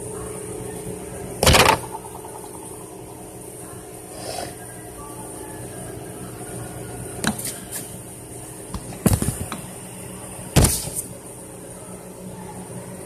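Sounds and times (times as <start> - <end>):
electric drive humming: 0.0 - 7.3.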